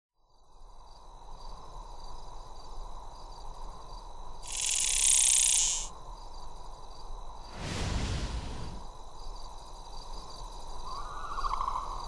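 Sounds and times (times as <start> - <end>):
loud high-pitched buzzing hiss: 4.5 - 5.9.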